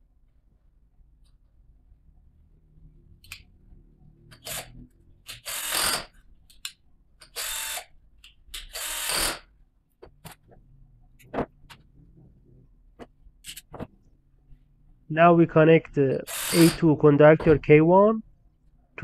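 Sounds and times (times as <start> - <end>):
cordless drill bursts: 5.4 - 6.1, 7.3 - 7.9, 8.7 - 9.4, 16.2 - 16.8.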